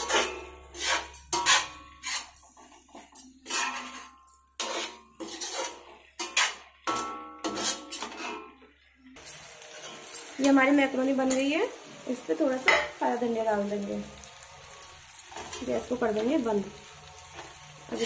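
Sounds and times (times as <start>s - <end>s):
spatula scraping metal pan: 0.0s - 8.6s.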